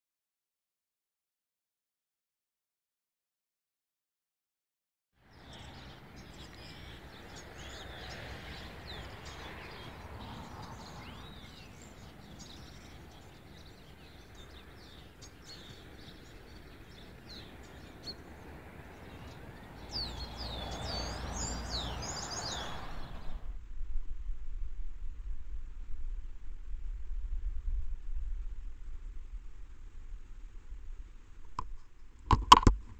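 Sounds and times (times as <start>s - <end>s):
outdoor background noise: 5.2s - 32.9s
small birds chirping: 5.3s - 23.5s.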